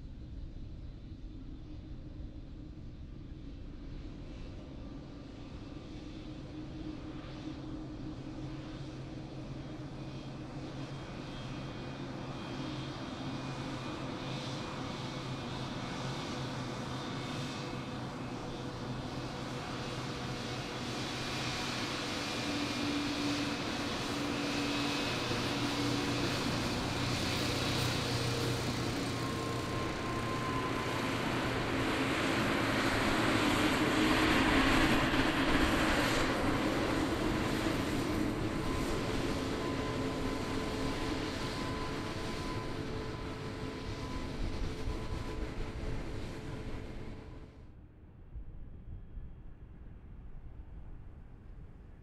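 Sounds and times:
jet engines roaring: 16.2s - 47.5s.

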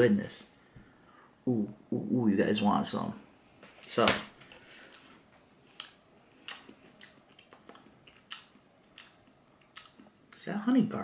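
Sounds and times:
wet mouth smacks and clicks: 5.8s - 10.1s.

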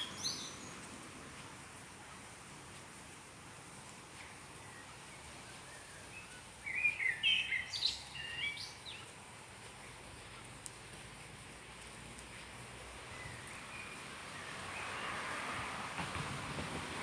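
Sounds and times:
songbird warbling chirps: 0.0s - 0.7s, 4.6s - 9.1s
steady outdoor hiss: 0.0s - 17.0s.

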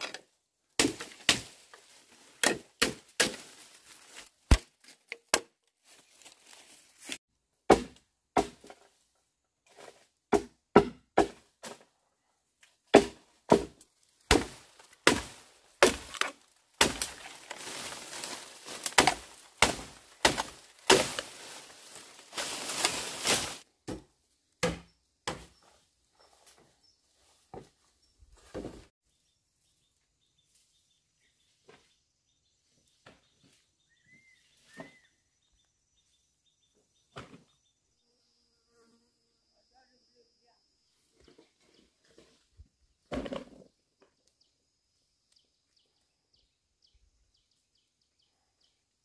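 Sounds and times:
blade chopping bamboo: 0.8s - 1.6s, 2.4s - 3.6s, 4.5s - 5.5s, 7.7s - 8.8s, 10.3s - 11.8s, 12.9s - 25.5s.

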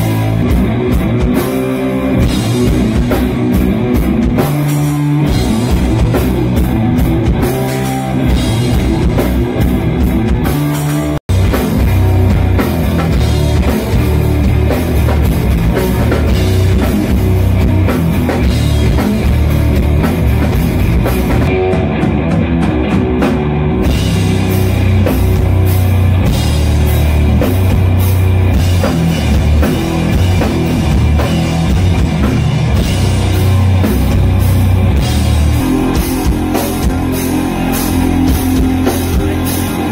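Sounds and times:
drum kit: 0.0s - 39.9s
heavy distorted guitars: 0.0s - 39.9s.

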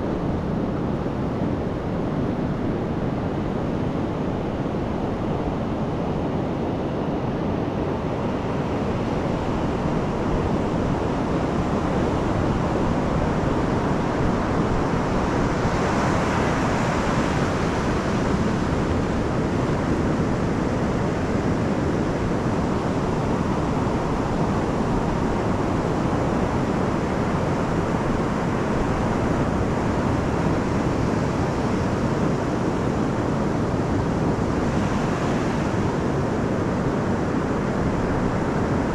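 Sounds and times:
surf washing up on beach: 9.4s - 38.9s.

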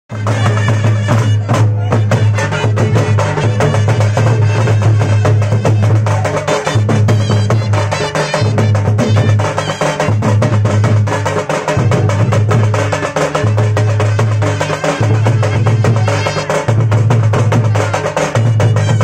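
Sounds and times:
folk drums playing fast rhythm: 0.1s - 19.0s.

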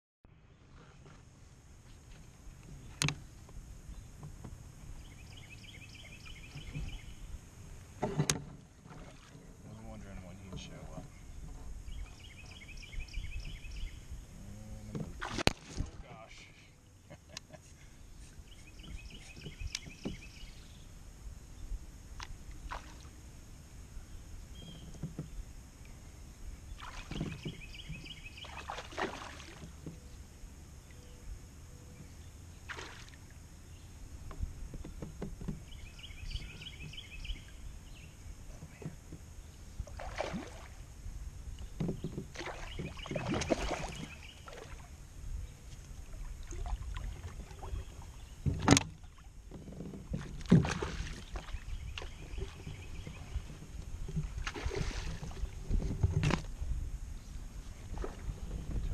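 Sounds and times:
water sloshing against hull: 0.7s - 16.5s, 17.6s - 21.0s, 24.4s - 31.2s, 31.8s - 58.9s
water splashes: 8.8s - 9.5s, 15.1s - 16.3s, 22.2s - 23.2s, 26.7s - 29.8s, 32.7s - 33.4s, 39.8s - 40.9s, 42.0s - 45.0s, 45.9s - 56.4s.

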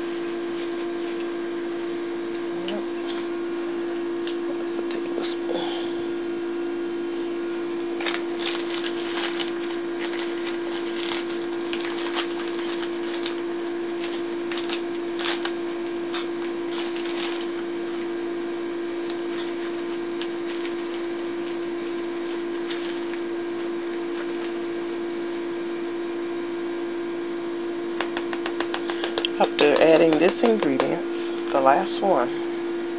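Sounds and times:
steady electrical hum: 0.0s - 32.9s
plastic bag crinkling: 8.0s - 18.0s, 19.2s - 24.6s.

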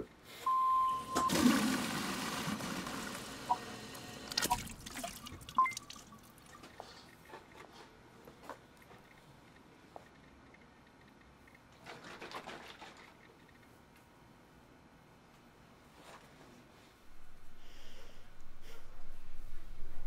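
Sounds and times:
water dispenser beeping: 0.5s - 6.6s
water gushing and dripping: 3.1s - 6.7s.

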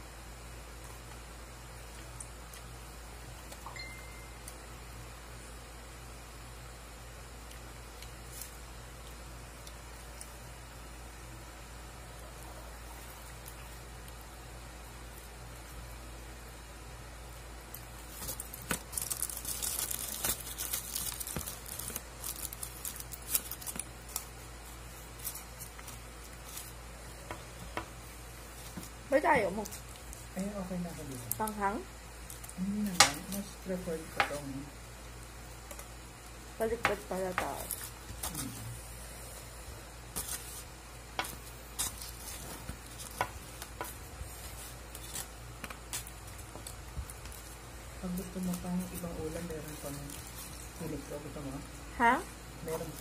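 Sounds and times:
aluminium foil crinkling: 7.4s - 10.4s, 17.2s - 38.7s, 40.0s - 53.0s.

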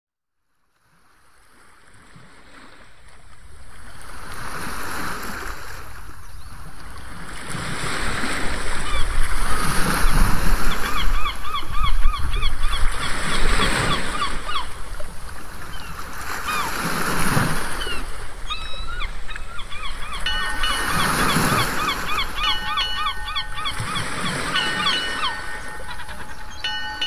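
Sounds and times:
waves washing: 1.4s - 27.0s
rapid bird calls: 15.6s - 27.0s
wind rumbling: 17.6s - 27.0s.

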